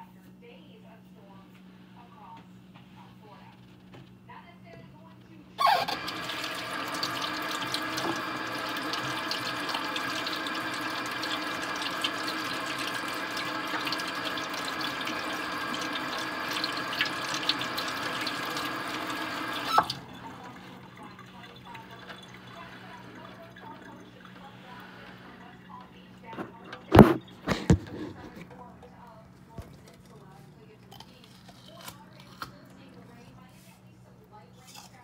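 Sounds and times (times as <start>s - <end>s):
tap running into sink: 5.6s - 20.1s, 25.7s - 28.3s.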